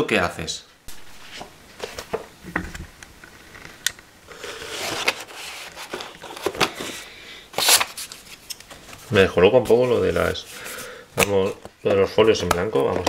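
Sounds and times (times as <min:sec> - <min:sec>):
paper rustling: 0:00.9 - 0:02.2, 0:03.4 - 0:11.6.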